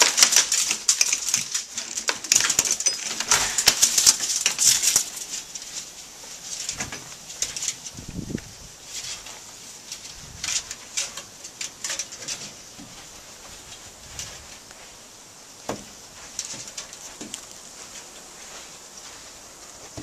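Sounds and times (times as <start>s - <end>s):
dog paws scuffling in snow: 16.0s - 20.0s.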